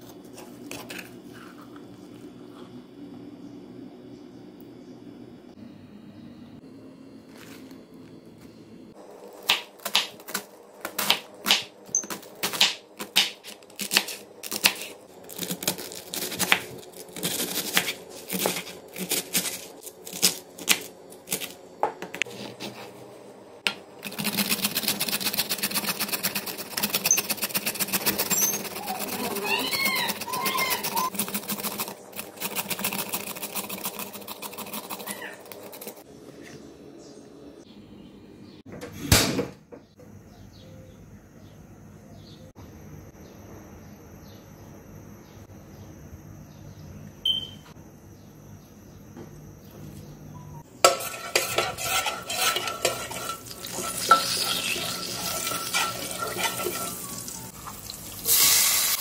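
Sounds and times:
carrot grated on metal grater: 24.0 - 36.0, 50.8 - 57.2.

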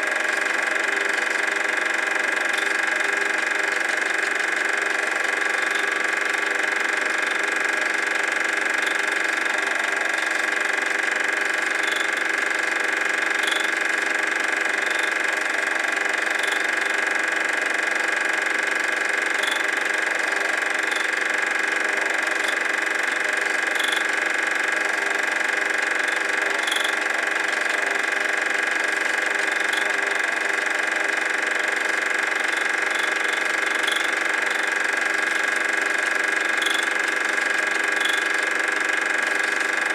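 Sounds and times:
film projector whirring: 0.0 - 39.9
faint projector clicks: 25.4 - 39.9.

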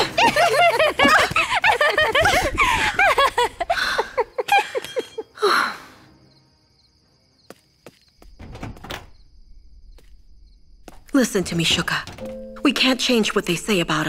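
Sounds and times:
cartoon voices laughing: 0.0 - 5.3
breathy sigh: 5.4 - 6.1.

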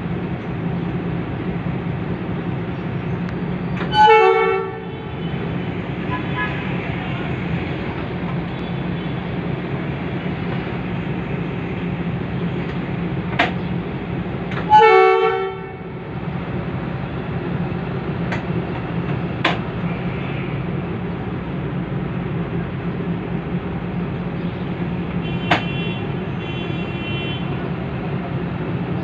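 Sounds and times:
diesel locomotive idling: 0.0 - 29.0
train horn blast: 3.8 - 5.4, 6.0 - 7.4, 14.6 - 16.0.

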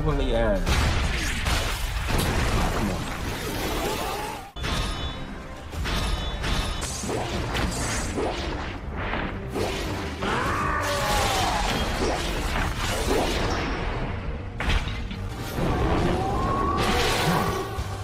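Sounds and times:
background music: 0.0 - 18.0.

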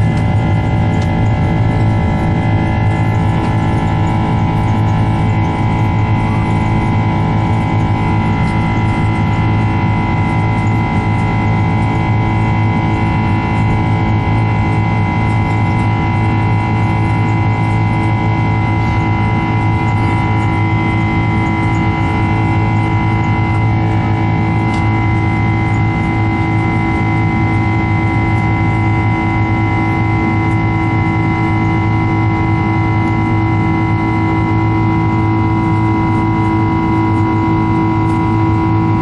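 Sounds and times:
jet engine roar in cabin: 0.0 - 39.0.

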